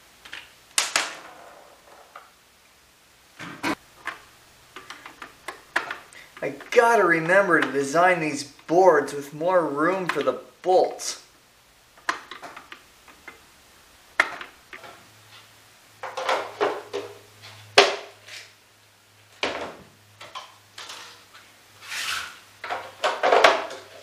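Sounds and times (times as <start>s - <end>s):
plastic parts knocking on workbench: 16.0s - 17.2s.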